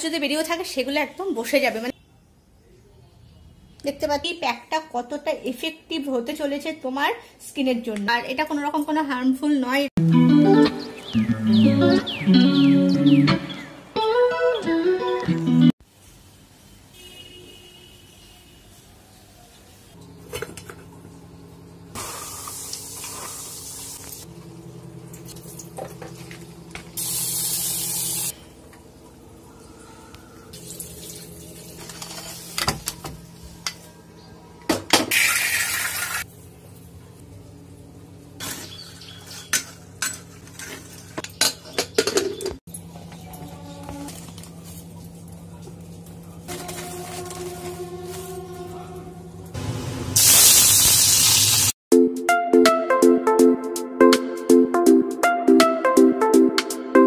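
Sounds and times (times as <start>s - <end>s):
water pouring: 30.6s - 32.1s
clinks of steel pots and utensils: 39.4s - 43.5s.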